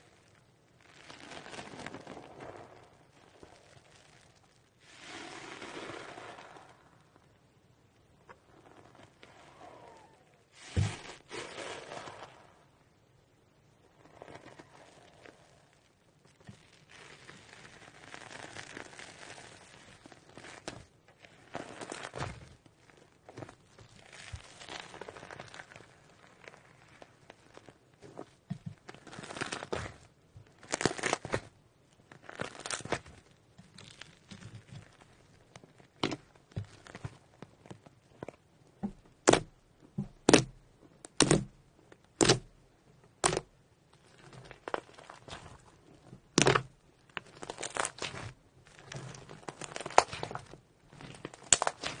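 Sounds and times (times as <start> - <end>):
slime squishing and crackling: 0.0 - 12.8, 13.5 - 52.0.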